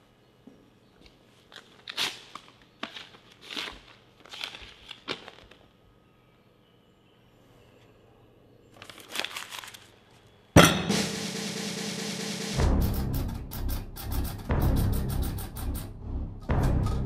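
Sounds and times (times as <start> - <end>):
paper envelope tearing: 1.5 - 5.6, 8.8 - 10.0.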